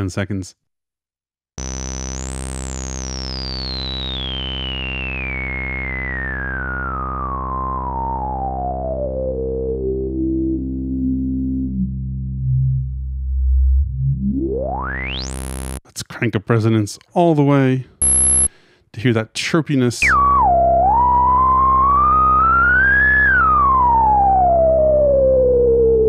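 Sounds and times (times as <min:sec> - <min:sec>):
synthesizer bass with filter sweep: 0:01.6 - 0:15.8, 0:18.0 - 0:18.5, 0:20.0 - 0:26.0.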